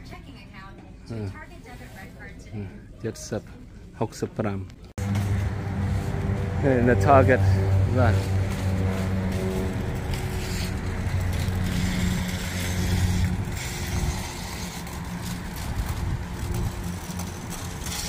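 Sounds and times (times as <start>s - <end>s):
low engine hum: 5.0s - 18.0s
shopping cart wheels rattling: 5.0s - 18.0s.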